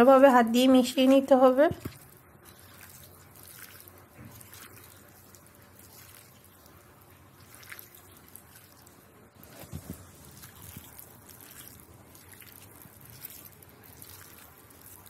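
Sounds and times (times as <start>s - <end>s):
hand squishing wet fish mixture: 0.2s - 15.0s
small squelches: 0.8s - 15.0s.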